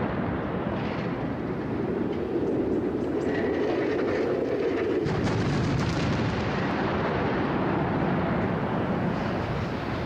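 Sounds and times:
crackle of demolition blasts: 0:05.0 - 0:09.6.

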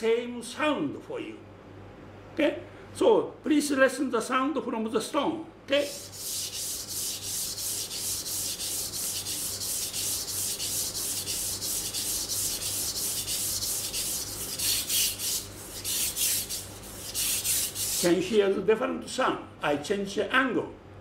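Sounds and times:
knife rasping on whetstone: 0:05.9 - 0:18.2.

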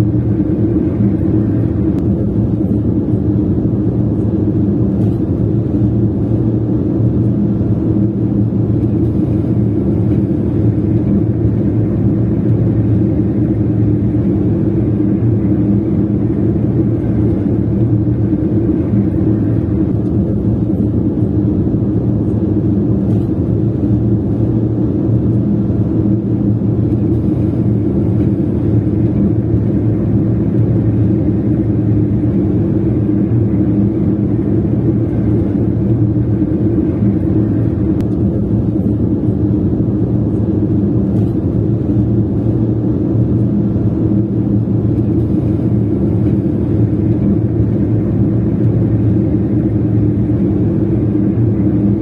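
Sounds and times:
car engine and road drone: 0:00.0 - 0:52.0.

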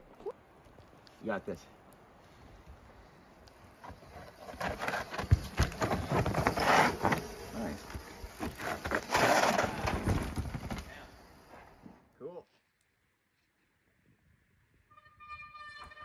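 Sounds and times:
bike tyres rolling on dirt: 0:00.4 - 0:11.9
bike knocking and rattling: 0:03.8 - 0:11.1.

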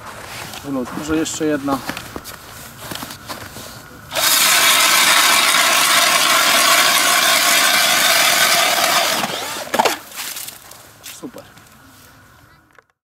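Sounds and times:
drill motor whine: 0:04.1 - 0:10.0
auger blades grinding ice: 0:04.1 - 0:10.6.

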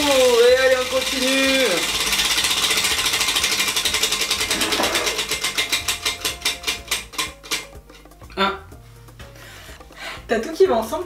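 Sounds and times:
prize wheel ticking: 0:00.0 - 0:08.1.

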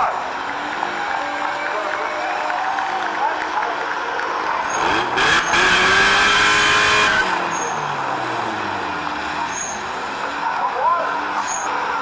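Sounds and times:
car engine revving: 0:04.4 - 0:11.6
tyres squealing: 0:06.9 - 0:08.0, 0:09.4 - 0:10.0.

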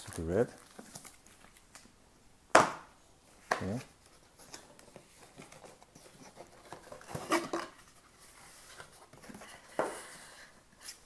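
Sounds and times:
cardboard and paper rustling: 0:03.6 - 0:11.0.

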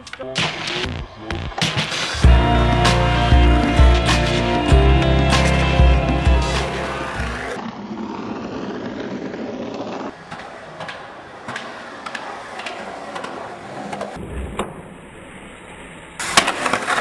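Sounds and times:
skateboard wheels rolling on concrete: 0:00.0 - 0:17.0
skateboard clacks: 0:07.3 - 0:14.9, 0:16.2 - 0:17.0
skateboard landing on concrete: 0:16.2 - 0:17.0.

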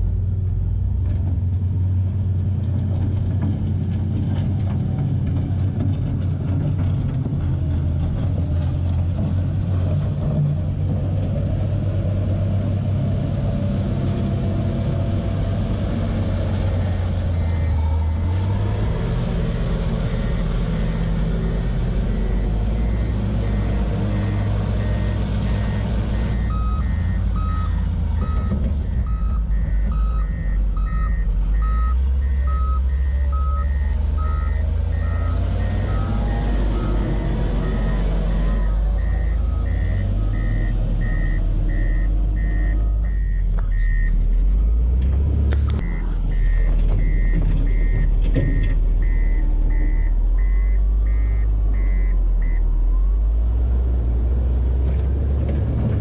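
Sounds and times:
wheel loader diesel engine rumble: 0:00.0 - 0:56.0
reversing alarm beeping: 0:16.0 - 0:44.2, 0:45.8 - 0:52.9
lower-pitched alarm beeping: 0:16.8 - 0:18.3, 0:19.0 - 0:44.2, 0:45.8 - 0:52.8.

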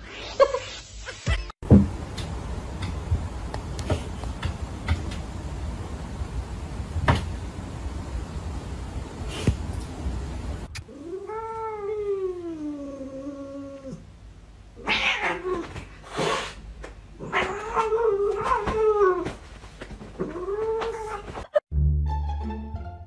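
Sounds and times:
cat yowling: 0:14.8 - 0:15.6, 0:17.2 - 0:19.2.

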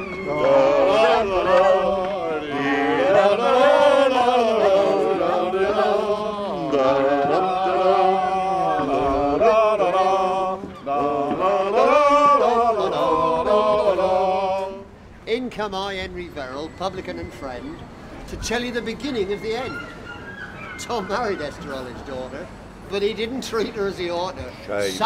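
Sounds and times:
group of voices singing: 0:00.0 - 0:15.0.

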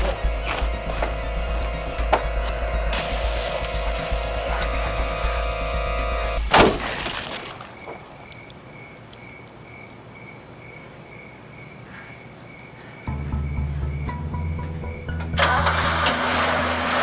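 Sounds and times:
high chirping pulse: 0:00.0 - 0:06.6, 0:13.1 - 0:15.6
sustained synth music: 0:00.0 - 0:06.6, 0:13.1 - 0:17.0.

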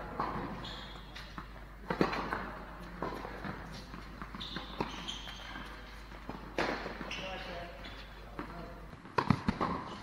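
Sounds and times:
ball bouncing on court: 0:00.0 - 0:10.0
racket hitting ball: 0:01.2 - 0:07.1, 0:09.0 - 0:10.0.

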